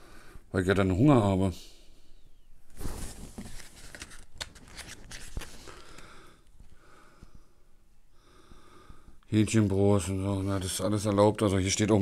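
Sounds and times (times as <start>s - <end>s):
paper pages rustling: 2.7s - 6.0s.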